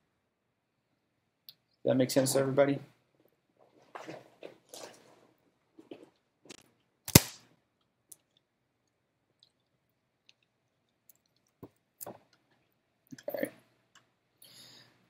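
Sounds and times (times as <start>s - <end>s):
soft rustles: 3.2s - 6.7s.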